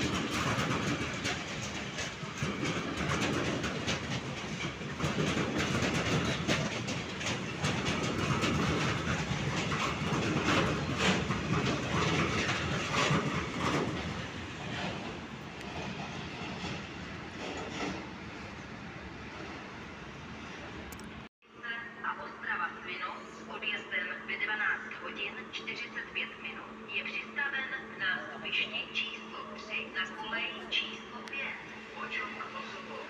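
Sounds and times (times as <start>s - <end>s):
train wheels clacking over rail joints: 0.0s - 19.7s
train rumbling: 0.0s - 21.3s, 22.4s - 33.0s.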